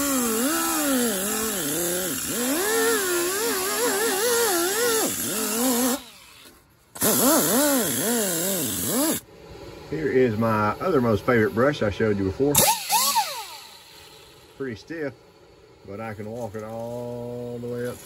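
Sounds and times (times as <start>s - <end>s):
air grinder wire brush whining: 0.0s - 9.2s, 12.5s - 14.7s, 15.9s - 18.0s.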